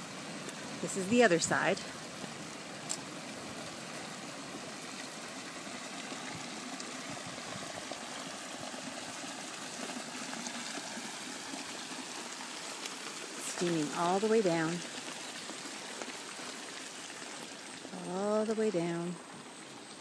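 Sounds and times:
water flowing down channel: 0:00.0 - 0:20.0.

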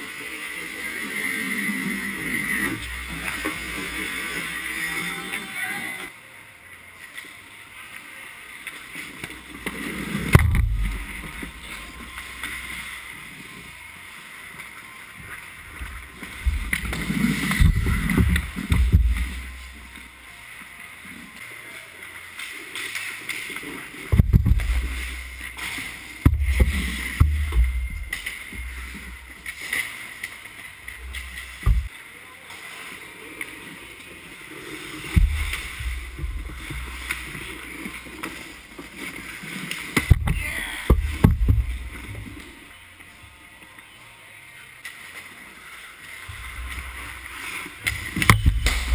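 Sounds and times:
steady rink hum: 0:00.0 - 0:48.9
goalie pads thudding on ice: 0:09.6 - 0:11.8, 0:24.1 - 0:29.9, 0:47.8 - 0:48.9
hockey sticks and puck clacking: 0:47.8 - 0:48.9.

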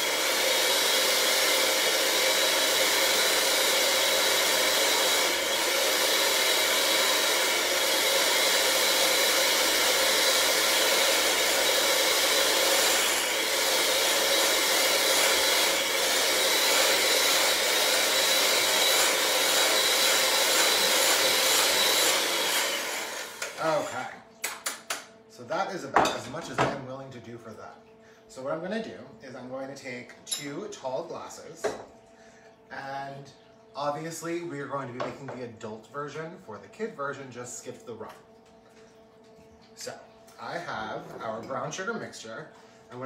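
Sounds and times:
electric mixer running: 0:00.0 - 0:24.1.

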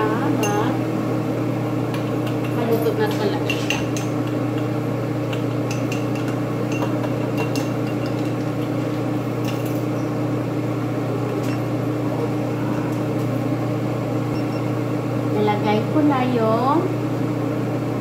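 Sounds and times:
appliance low hum: 0:00.0 - 0:18.0
spoon clinking in bowl: 0:05.3 - 0:08.5.

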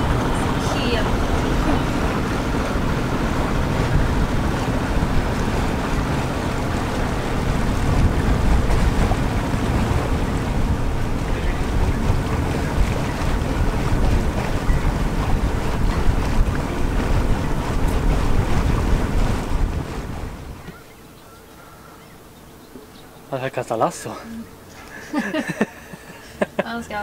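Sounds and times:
wind buffeting microphone: 0:00.0 - 0:23.4
water washing along hull: 0:00.0 - 0:27.0.

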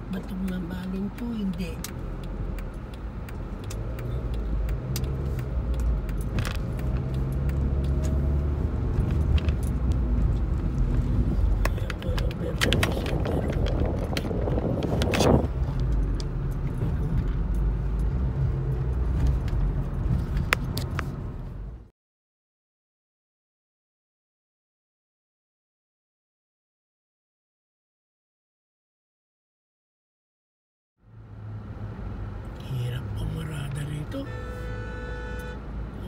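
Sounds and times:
engine and road rumble: 0:00.0 - 0:21.9, 0:31.0 - 0:36.0
clicks and rattles inside car: 0:00.1 - 0:08.2, 0:08.9 - 0:21.2.

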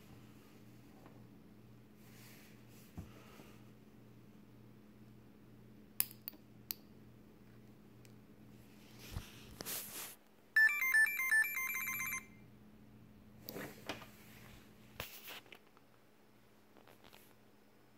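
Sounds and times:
buzzer beeping tune: 0:10.6 - 0:12.3.

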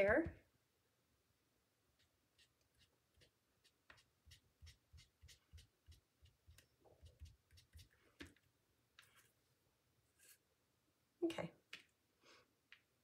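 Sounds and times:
sponge dabbing on cardstock: 0:02.0 - 0:08.4.

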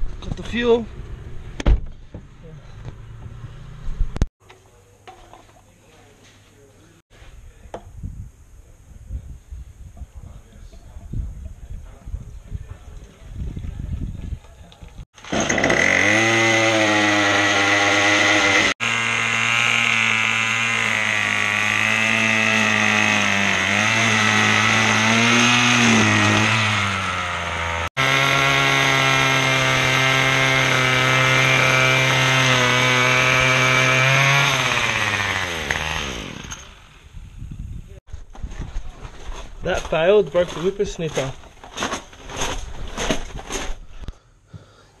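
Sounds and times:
string trimmer running: 0:15.2 - 0:37.0.

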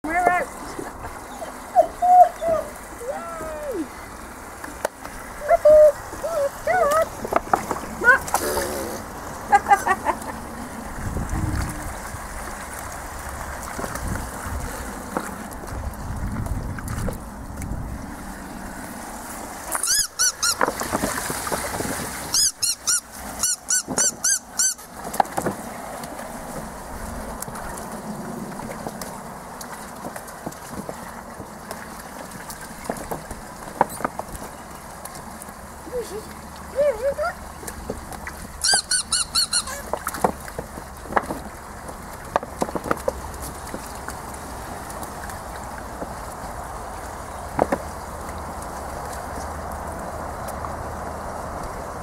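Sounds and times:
puppies whining and yelping: 0:01.2 - 0:03.9, 0:38.6 - 0:39.9.

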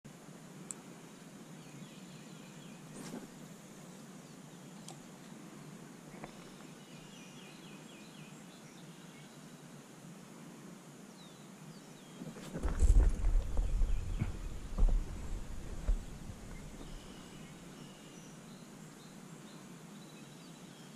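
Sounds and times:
faint steady hiss: 0:00.1 - 0:20.9
bird calling faintly: 0:12.2 - 0:18.5.

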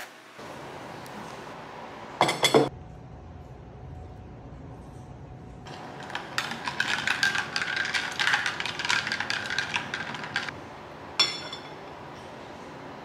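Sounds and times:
spoon stirring in enamel cup: 0:05.7 - 0:10.5.

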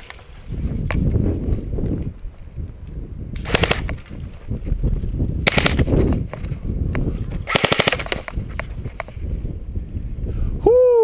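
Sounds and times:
airsoft rifle full-auto bursts: 0:03.4 - 0:03.9, 0:05.4 - 0:05.9, 0:07.5 - 0:08.3.

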